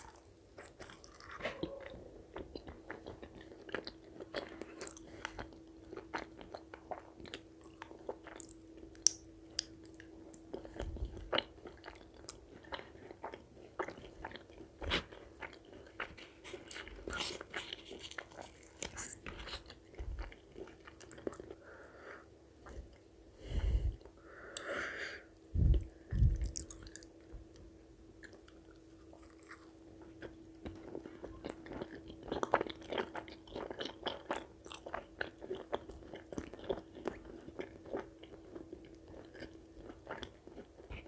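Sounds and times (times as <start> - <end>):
faint steady hum: 0.0 - 41.0
chewing and wet mouth clicks: 26.4 - 27.2.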